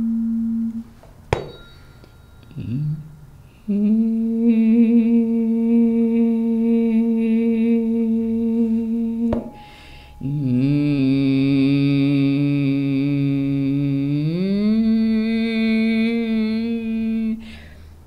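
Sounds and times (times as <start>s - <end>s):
woman humming: 0.0s - 0.9s, 2.5s - 17.5s
tuning forks ringing: 1.4s - 3.8s, 9.3s - 12.1s
in-breath: 9.6s - 10.2s, 17.4s - 18.0s.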